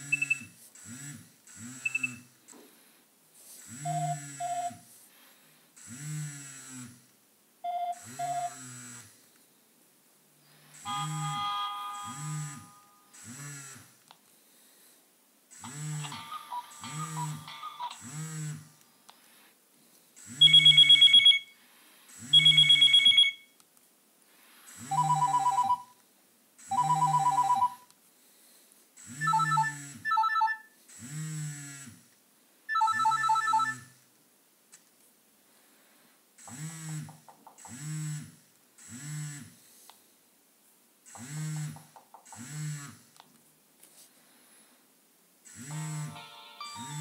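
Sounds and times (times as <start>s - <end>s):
desk telephone trill ringtone: 3.8s - 4.8s, 7.7s - 8.6s, 10.8s - 13.1s, 15.8s - 18.3s, 20.4s - 21.5s, 22.3s - 23.5s, 24.9s - 26.0s, 26.7s - 27.9s, 29.1s - 30.7s, 32.7s - 33.9s, 45.7s - 47.0s
phone ringtone cuckoo tone: 3.8s - 4.8s, 7.6s - 8.6s, 10.8s - 13.0s, 16.0s - 18.0s, 20.4s - 21.6s, 22.3s - 23.5s, 24.9s - 26.0s, 26.7s - 27.9s, 29.2s - 30.7s, 32.7s - 33.9s, 45.7s - 47.0s.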